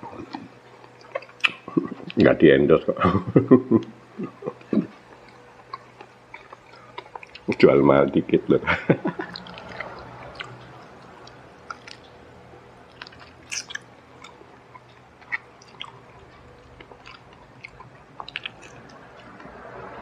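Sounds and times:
faint low hum: 0:00.0 - 0:20.0
person chewing fried chicken: 0:00.1 - 0:02.2, 0:04.1 - 0:07.6, 0:08.9 - 0:20.0
wet mouth clicks: 0:00.3 - 0:02.1, 0:13.0 - 0:19.6.

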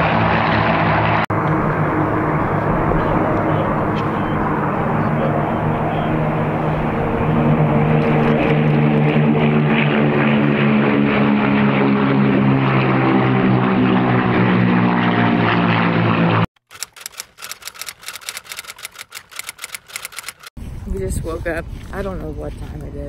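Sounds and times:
propeller aircraft engines droning: 0:00.0 - 0:23.0
typewriter key clacks: 0:16.7 - 0:20.5.

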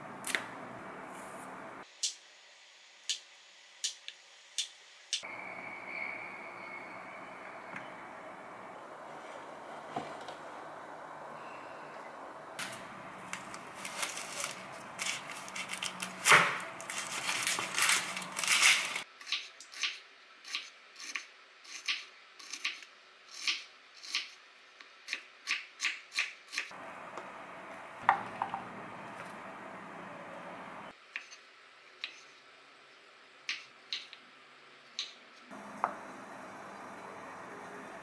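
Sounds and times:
knife slicing onion on board: 0:19.2 - 0:24.4, 0:25.1 - 0:26.7.

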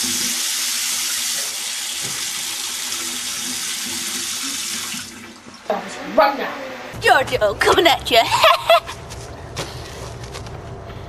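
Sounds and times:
shower water running: 0:00.0 - 0:06.8.

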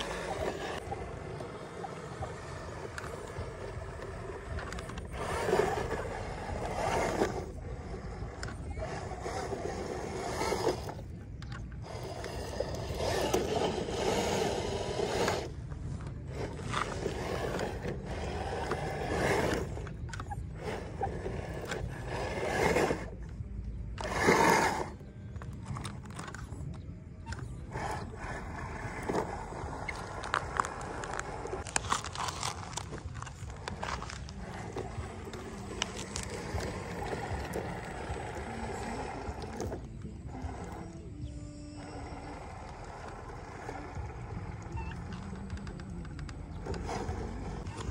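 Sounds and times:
toy truck motor whirring: 0:00.0 - 0:47.9
tyres crunching on stones: 0:28.9 - 0:40.2.

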